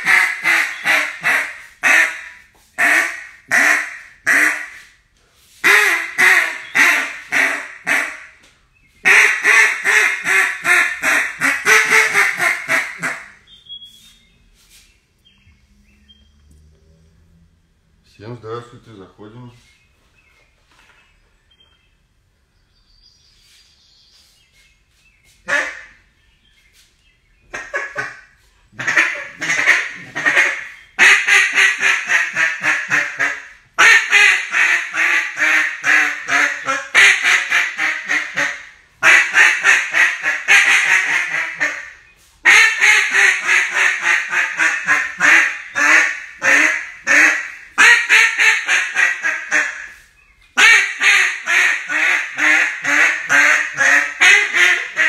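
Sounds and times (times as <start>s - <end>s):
duck call quacks: 0.0s - 4.9s, 5.6s - 8.4s, 9.0s - 13.4s, 25.5s - 26.0s, 27.5s - 50.0s, 50.6s - 55.0s.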